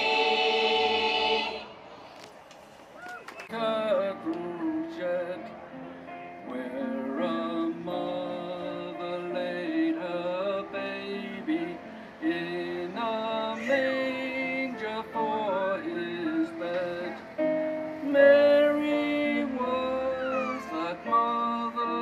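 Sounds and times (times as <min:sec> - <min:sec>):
choir singing: 0:00.0 - 0:01.9.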